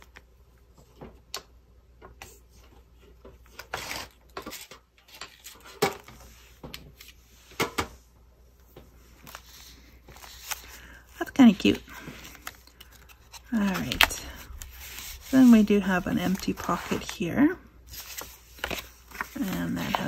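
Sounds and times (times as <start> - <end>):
paper rustling: 9.0 - 20.0.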